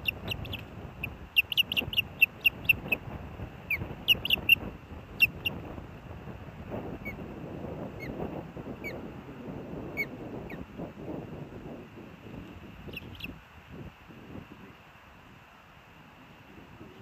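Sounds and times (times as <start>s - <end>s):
ospreys chirping: 0.0s - 3.1s, 3.7s - 5.6s, 12.8s - 13.4s
rumble of wingbeats: 0.0s - 15.0s.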